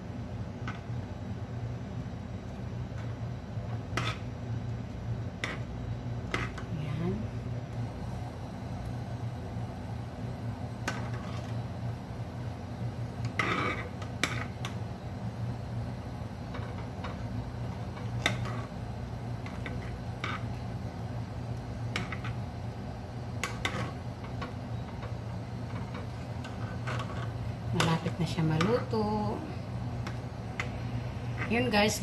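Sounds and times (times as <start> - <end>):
steady low hum: 0.0 - 32.0
metal ladle scraping a pot: 25.8 - 27.3.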